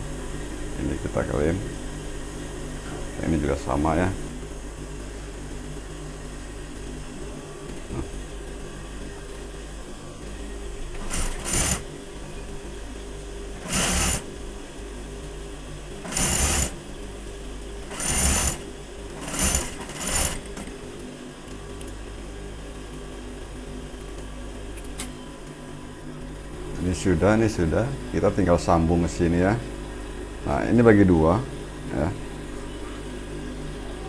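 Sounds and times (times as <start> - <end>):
motor humming: 10.9 - 12.2, 12.8 - 22.0
sewing machine stitching: 11.0 - 11.9, 13.6 - 14.3, 16.0 - 16.8, 17.9 - 20.7.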